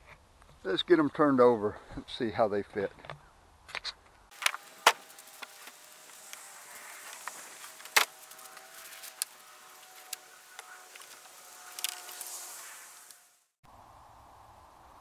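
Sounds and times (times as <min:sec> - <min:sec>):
leaves rustling: 0:04.3 - 0:14.3
faint steady drone: 0:04.3 - 0:15.0.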